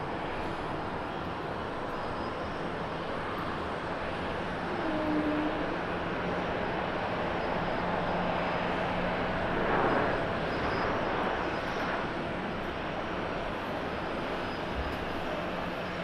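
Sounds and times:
jet engines rushing: 0:05.6 - 0:16.0.

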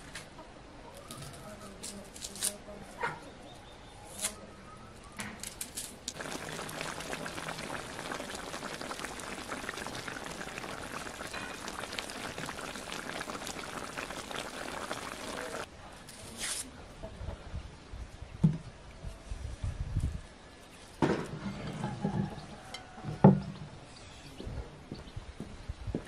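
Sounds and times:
pot boiling with crackling bubbles: 0:06.0 - 0:15.7.

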